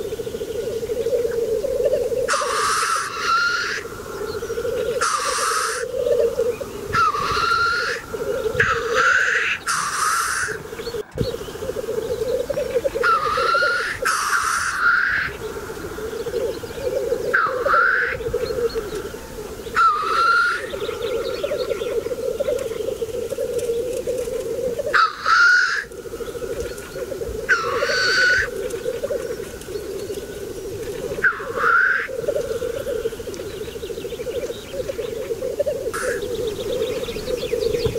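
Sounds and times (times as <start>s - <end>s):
grouse bubbling cooing song: 0.0s - 37.9s.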